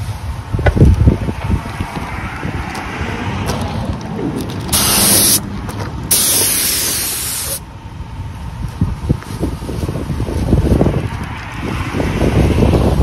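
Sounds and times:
wind rumbling on microphone: 0:00.0 - 0:13.0
paint spray gun hissing: 0:04.7 - 0:05.4, 0:06.1 - 0:07.6.

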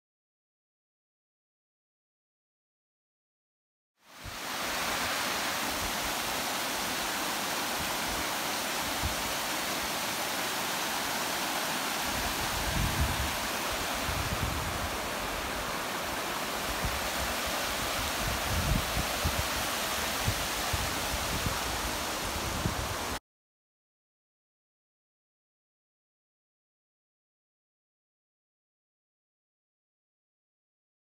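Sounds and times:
stream rushing over rocks: 0:04.1 - 0:23.2.

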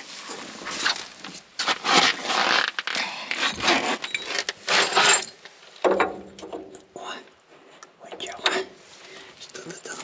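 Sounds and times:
rustling and scraping: 0:00.0 - 0:06.8.

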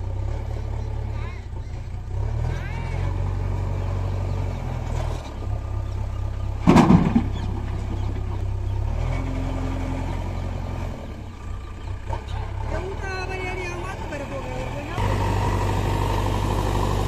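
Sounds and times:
diesel engines running: 0:00.0 - 0:17.0
soil dumped into trailer crash: 0:06.6 - 0:08.4.

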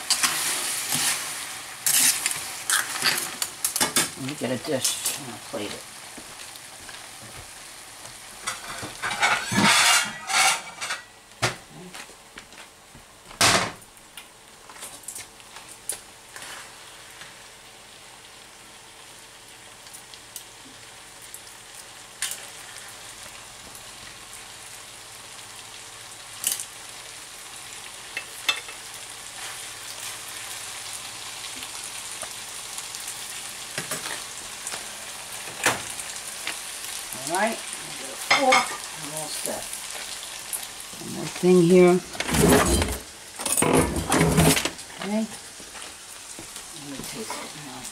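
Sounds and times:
pan sizzling: 0:00.0 - 0:47.9
metal tongs clinking on pan: 0:08.4 - 0:11.1, 0:28.1 - 0:28.9, 0:38.2 - 0:38.9.

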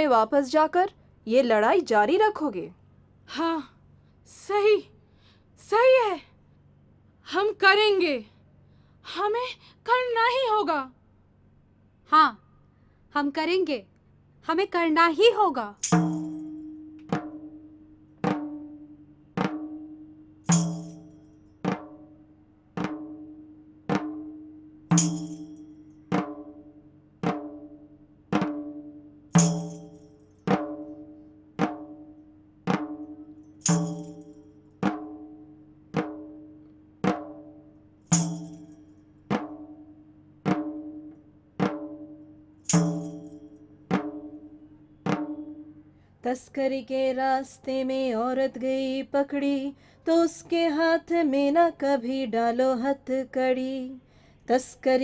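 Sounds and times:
slow ringing drum beat: 0:15.8 - 0:45.8.

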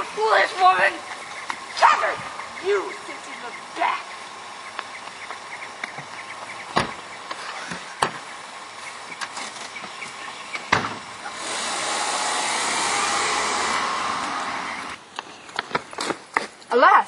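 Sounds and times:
car driving off: 0:00.0 - 0:15.0
car doors shutting: 0:05.1 - 0:08.3, 0:09.1 - 0:11.8.

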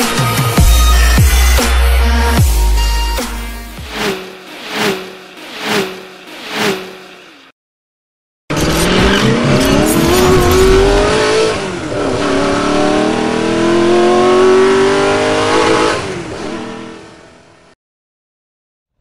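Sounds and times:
car engine accelerating hard: 0:03.8 - 0:07.4, 0:08.5 - 0:17.2.

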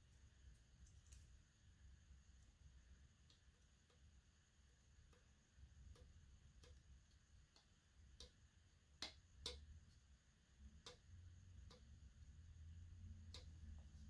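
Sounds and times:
low room hum: 0:00.0 - 0:14.0
hard drive clicks and taps: 0:05.0 - 0:12.3, 0:13.1 - 0:14.0.

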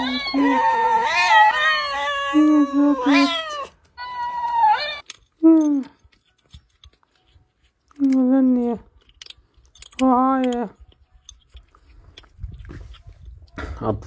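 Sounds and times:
cat meowing and yowling: 0:00.0 - 0:05.0.

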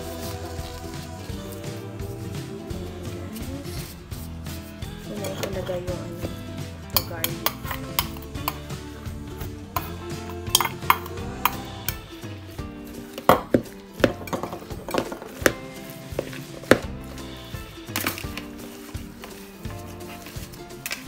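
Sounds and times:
background music: 0:00.0 - 0:21.0
metal spoon clinking on bowl: 0:05.1 - 0:05.9, 0:06.9 - 0:08.7, 0:10.5 - 0:12.0.

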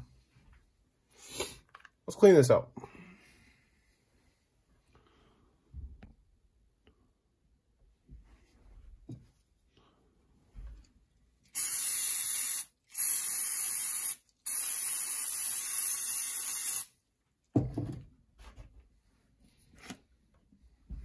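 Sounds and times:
aerosol spray can hissing: 0:11.5 - 0:17.0.

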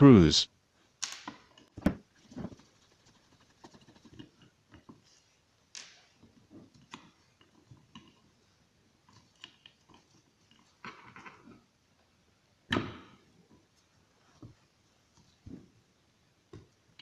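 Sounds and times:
small clicks and rustles: 0:01.0 - 0:11.6.

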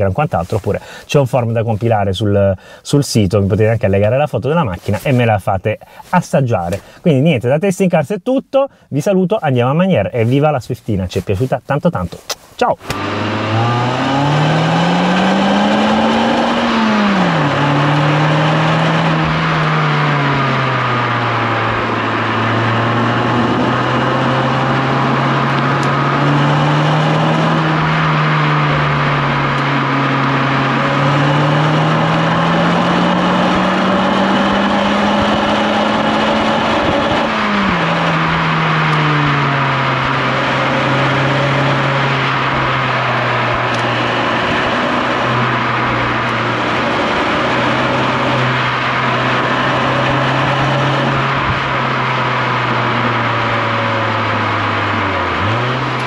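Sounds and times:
car engine revving through gears: 0:12.8 - 0:56.0.

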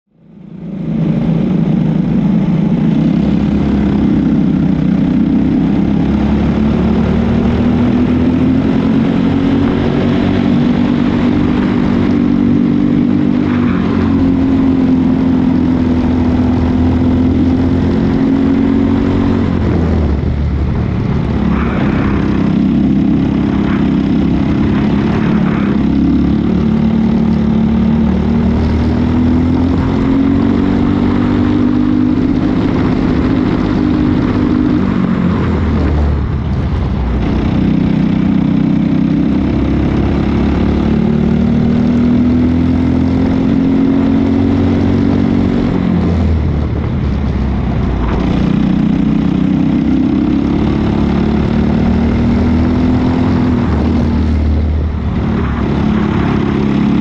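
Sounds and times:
kart engine running hard: 0:00.6 - 0:57.0.

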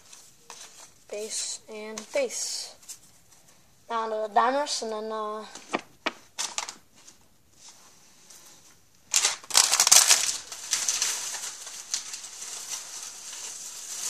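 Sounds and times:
plastic packaging crinkling: 0:05.7 - 0:07.1, 0:09.0 - 0:14.0.

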